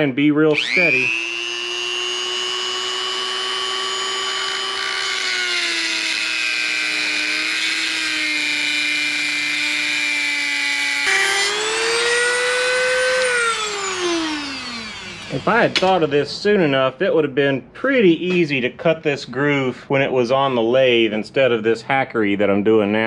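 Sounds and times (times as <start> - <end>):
rotary tool grinding metal: 0.5 - 16.1.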